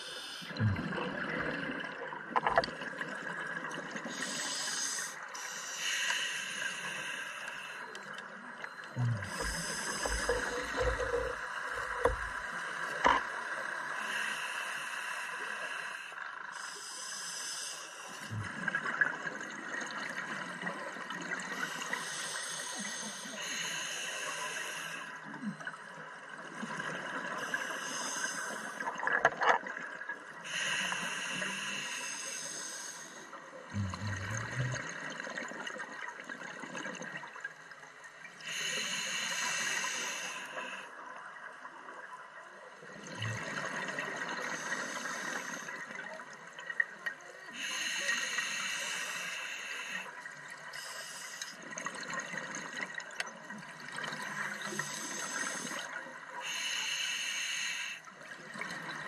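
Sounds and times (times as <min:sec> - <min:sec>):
regulator breath hissing: 0:04.1 - 0:07.9, 0:09.3 - 0:12.4, 0:30.5 - 0:33.2, 0:38.5 - 0:40.8, 0:47.6 - 0:50.1, 0:50.7 - 0:51.6, 0:54.8 - 0:58.0.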